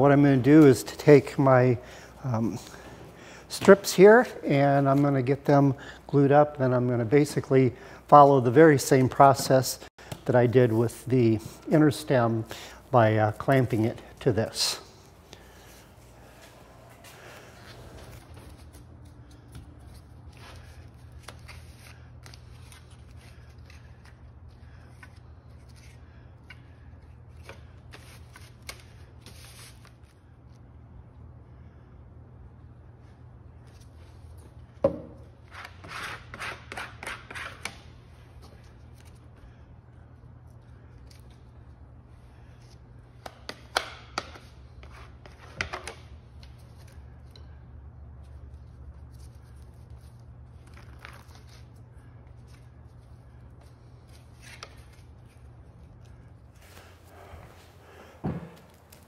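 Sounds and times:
steady low hum: 0:46.1 - 0:59.0.

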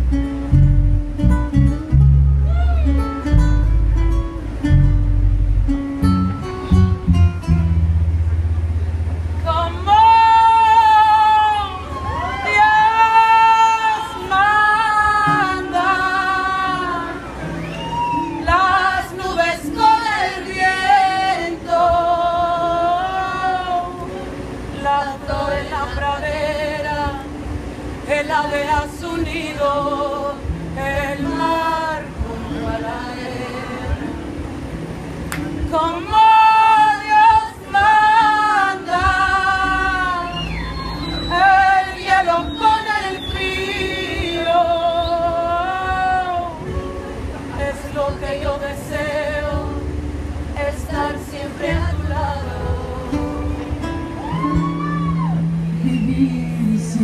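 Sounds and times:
acoustic guitar: 0:00.0 - 0:57.0
quiet band accompaniment: 0:00.0 - 0:57.0
woman singing: 0:09.4 - 0:17.3, 0:18.4 - 0:24.1, 0:24.8 - 0:27.4, 0:28.0 - 0:34.3, 0:35.6 - 0:40.6, 0:41.2 - 0:46.7, 0:47.5 - 0:53.7, 0:55.8 - 0:57.0.

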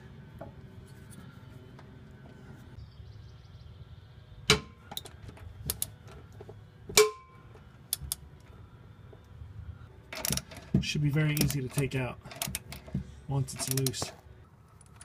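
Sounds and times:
wrench clinking on metal: 0:13.5 - 0:14.1.

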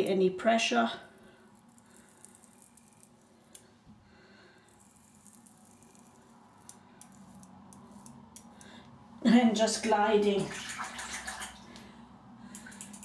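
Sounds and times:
razor scraping skin: 0:01.4 - 0:03.7, 0:04.6 - 0:08.7.

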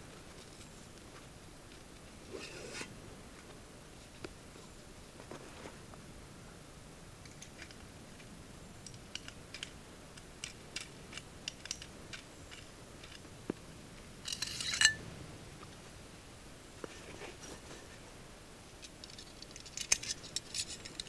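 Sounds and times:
metallic scrape: 0:02.3 - 0:02.9
metal saw parts clicking: 0:10.4 - 0:13.2, 0:18.8 - 0:21.0.

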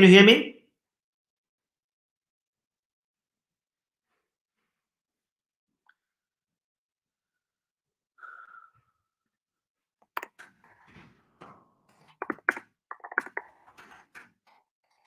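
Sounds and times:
sharp clicks and crackles: 0:12.1 - 0:14.3
garbled chopped-up voice fragments: 0:12.2 - 0:13.6.

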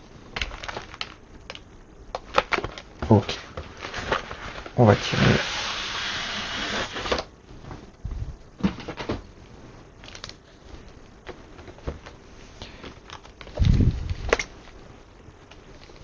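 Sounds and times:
packaging rustling: 0:00.3 - 0:05.4, 0:10.0 - 0:14.8.

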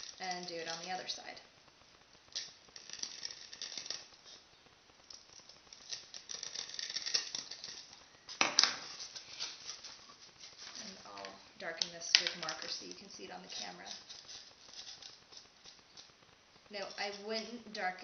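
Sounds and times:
compass point scraping foam: 0:02.3 - 0:11.2, 0:12.3 - 0:18.0.

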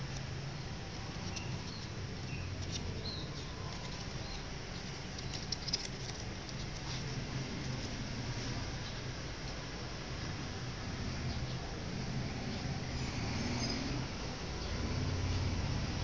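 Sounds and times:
paper crinkling and rustling: 0:00.0 - 0:08.6
steady low hum: 0:00.0 - 0:16.0.

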